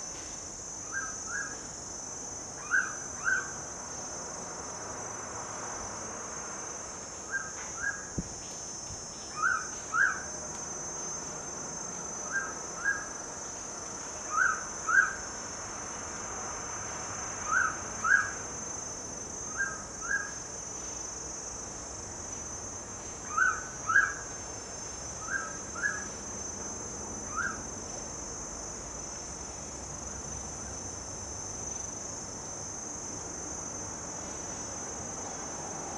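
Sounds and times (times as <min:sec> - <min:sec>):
insect drone: 0:00.0 - 0:35.9
bird double-whistle song: 0:25.2 - 0:26.1.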